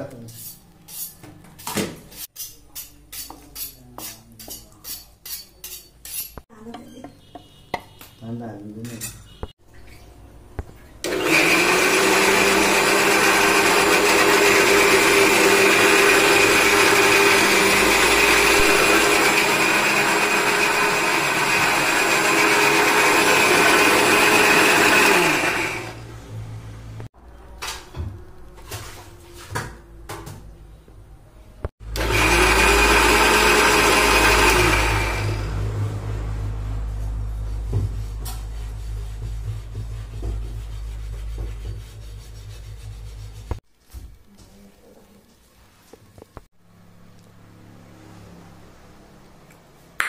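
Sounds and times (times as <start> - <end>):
mixer grinder motor running: 11.0 - 26.1, 31.8 - 36.0.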